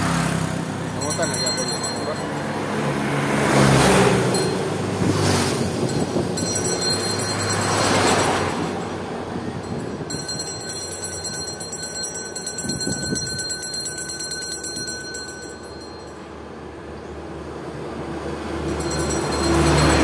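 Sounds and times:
outdoor background noise: 0:00.0 - 0:20.0
high trilling bell ring: 0:01.0 - 0:02.9, 0:04.1 - 0:05.0, 0:05.7 - 0:16.4, 0:18.6 - 0:20.0.

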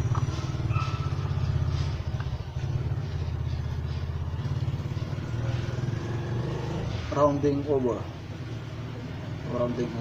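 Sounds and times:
engine idling: 0:00.0 - 0:05.9.

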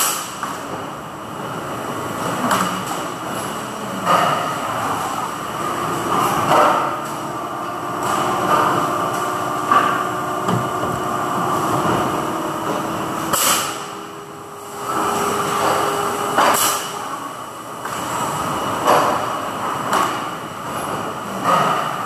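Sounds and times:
machine mechanical hum: 0:00.0 - 0:22.0
machine knocks: 0:05.7 - 0:14.2.

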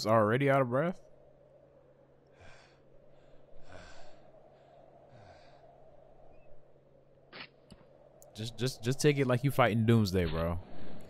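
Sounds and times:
man breathing heavily: 0:02.2 - 0:06.2.

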